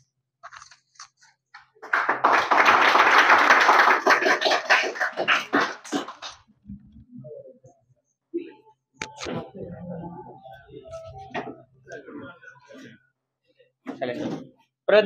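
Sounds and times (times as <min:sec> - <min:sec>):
small group clapping: 0:01.6 - 0:06.5.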